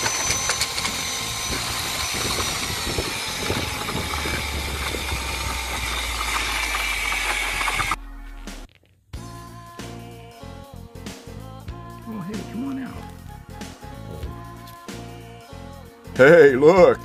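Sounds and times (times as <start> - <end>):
drill mixer churning concrete: 0.0 - 8.0
music: 8.0 - 17.0.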